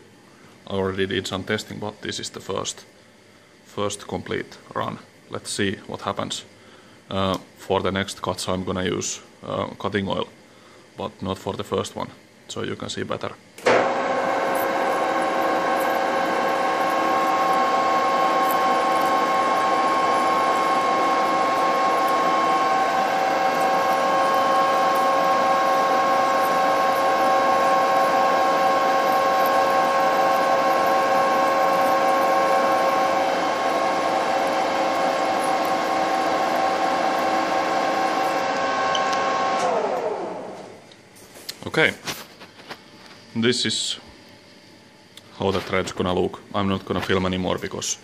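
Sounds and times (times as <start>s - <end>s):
metal lathe cutting thread: 13.7s - 40.6s.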